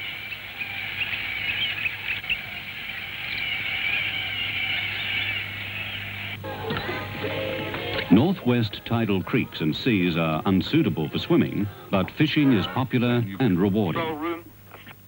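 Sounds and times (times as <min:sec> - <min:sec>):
cockatoos squawking: 0:00.0 - 0:15.0
music: 0:06.4 - 0:13.3.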